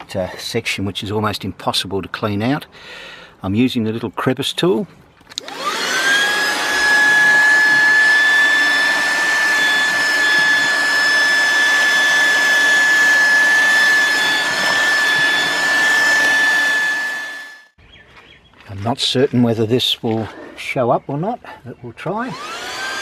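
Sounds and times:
handheld vacuum cleaner whine: 0:05.3 - 0:17.8, 0:22.2 - 0:23.0.

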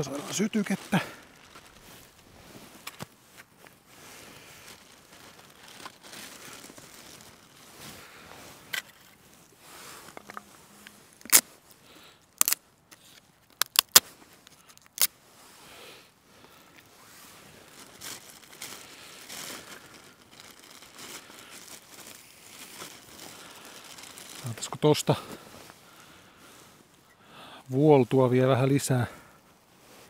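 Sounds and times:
wood cracking and snapping: 0:12.4 - 0:12.6, 0:13.5 - 0:14.1.

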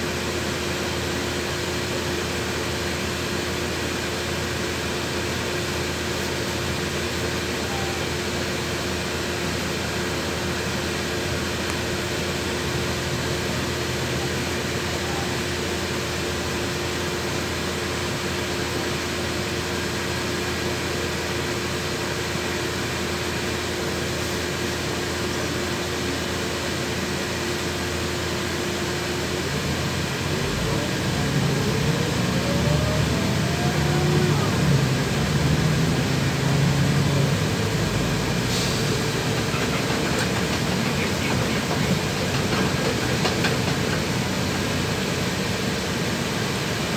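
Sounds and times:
bus engine and blower hum: 0:00.0 - 0:46.9
rising engine whines: 0:29.6 - 0:45.6.

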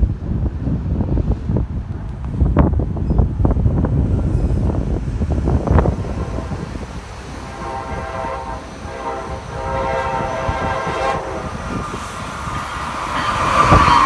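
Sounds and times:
approaching train rush: 0:00.0 - 0:14.0
trains rumbling: 0:00.0 - 0:14.0
train horn blasts: 0:07.2 - 0:11.9.

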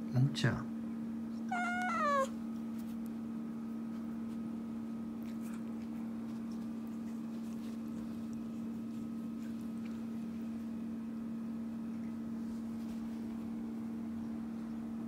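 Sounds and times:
appliance humming: 0:00.9 - 0:15.0
cat meowing: 0:01.4 - 0:02.4.

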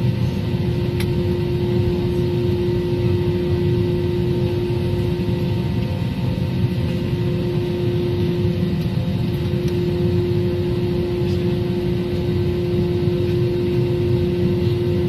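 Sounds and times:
jet engines rumbling and whining: 0:00.0 - 0:15.0.

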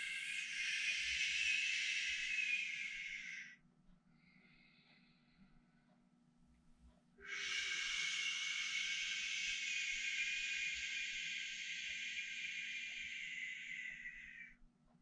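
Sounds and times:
man exhaling with hissing shhh: 0:00.0 - 0:03.5, 0:07.2 - 0:14.5
faint breath in: 0:00.0 - 0:03.6, 0:07.2 - 0:14.5.

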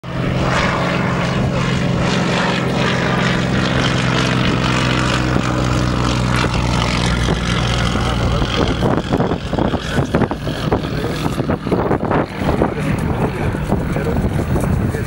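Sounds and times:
propeller noise: 0:00.0 - 0:15.0
radial aircraft engine running: 0:00.0 - 0:15.0.

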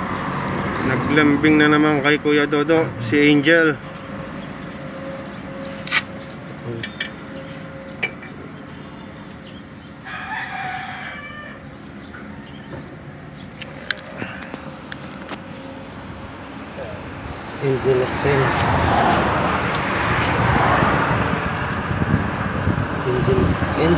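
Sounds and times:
rooster crowing: 0:10.0 - 0:12.7
steady low hum: 0:11.6 - 0:18.6.

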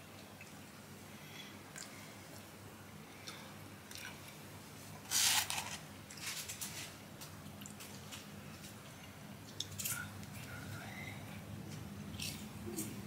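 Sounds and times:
paper bag rustling: 0:05.1 - 0:07.0.

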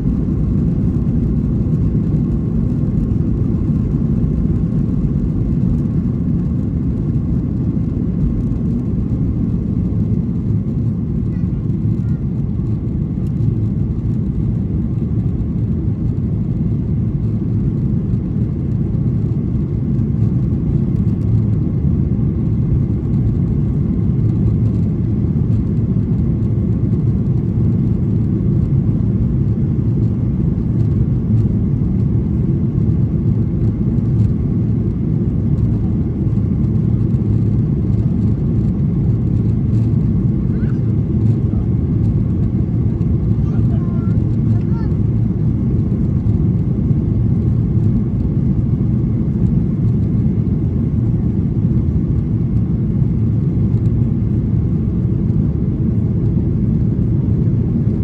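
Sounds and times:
jet engine rumble: 0:00.0 - 0:58.0.

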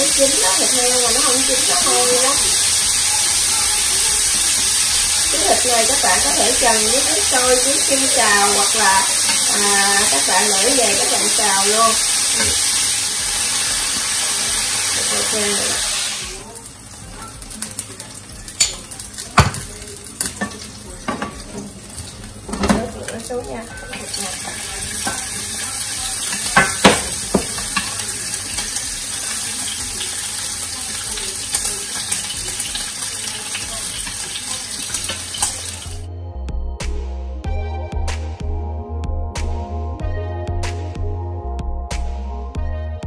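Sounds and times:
shrimp sizzling in hot oil: 0:00.0 - 0:36.1
music: 0:00.0 - 0:43.0.

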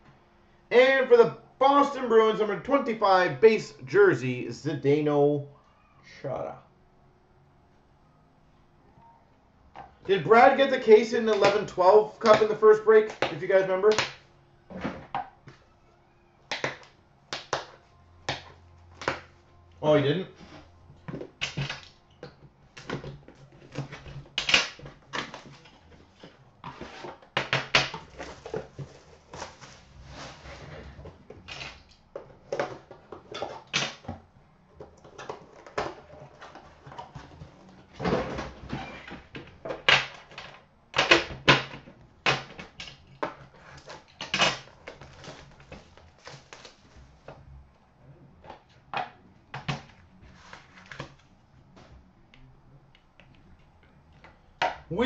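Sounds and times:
card packaging being handled: 0:22.7 - 0:33.7, 0:43.4 - 0:47.3, 0:49.8 - 0:51.8.

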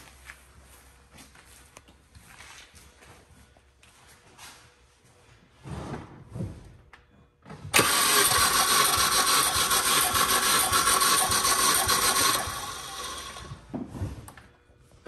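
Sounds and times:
engine cranking on starter motor: 0:07.7 - 0:13.6.

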